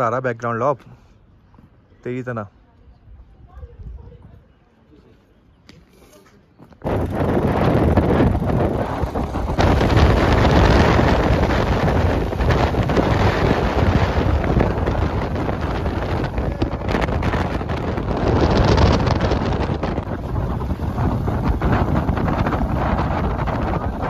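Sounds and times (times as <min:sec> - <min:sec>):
wind buffeting microphone: 0:02.9 - 0:04.6, 0:06.5 - 0:24.0
scooter ride rumble: 0:05.6 - 0:24.0.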